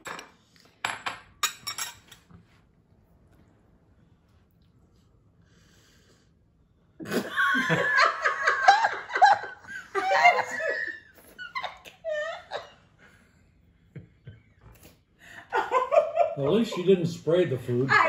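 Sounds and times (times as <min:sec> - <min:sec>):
woman laughing: 0:07.0 - 0:13.0, 0:15.3 - 0:17.1.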